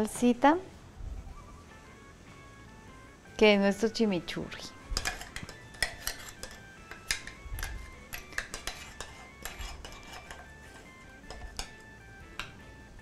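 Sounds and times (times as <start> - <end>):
metal spoon scraping glass jar: 5.0 - 11.7.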